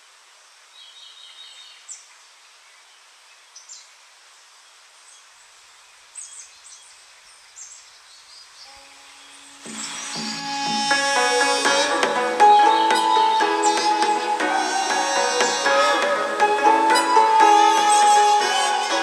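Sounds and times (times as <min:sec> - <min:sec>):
steady hiss: 0:00.0 - 0:19.0
small birds chirping: 0:04.6 - 0:16.0.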